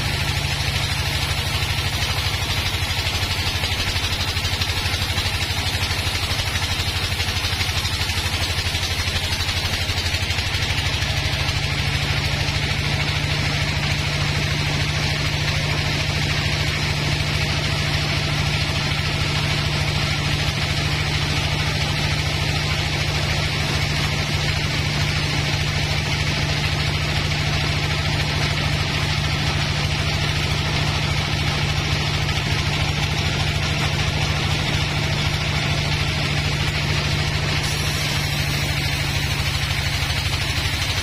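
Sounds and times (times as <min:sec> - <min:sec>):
band saw engine hum: 0:00.0 - 0:41.0
saw blade cutting log hiss: 0:37.6 - 0:41.0.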